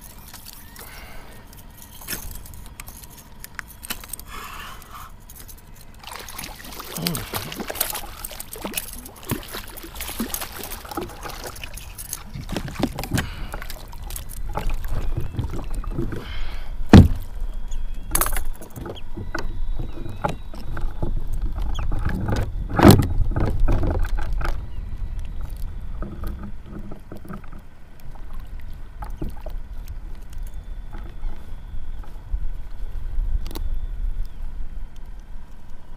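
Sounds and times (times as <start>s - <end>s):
fish splashing in water: 6.0s - 17.4s
loud thumps: 16.9s - 17.3s.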